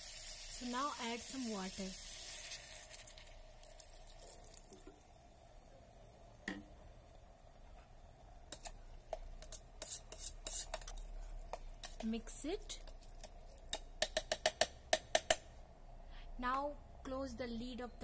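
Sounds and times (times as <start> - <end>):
water sizzling in hot pot: 0.0 - 5.2
spatula scraping metal pot: 8.5 - 13.8.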